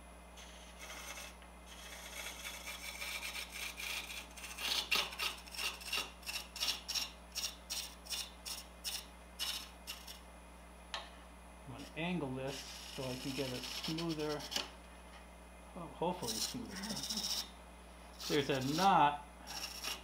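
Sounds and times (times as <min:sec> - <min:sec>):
lathe tool scraping wood: 0:00.4 - 0:10.2, 0:11.8 - 0:14.7, 0:16.1 - 0:17.5, 0:18.2 - 0:20.0.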